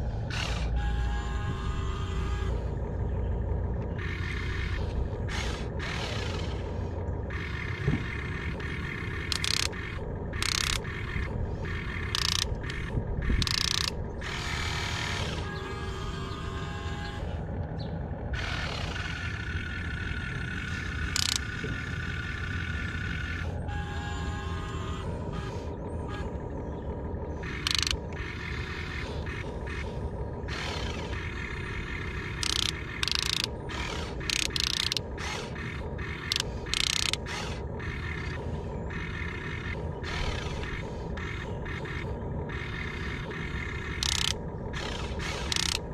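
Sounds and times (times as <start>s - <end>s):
low rumble: 0.0s - 34.3s
electric gear motors whining: 0.0s - 45.9s.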